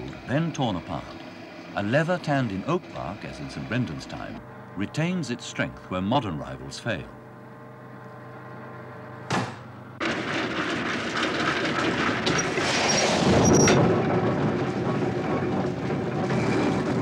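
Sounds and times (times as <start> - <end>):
bark mill grinding: 10.0 - 17.0.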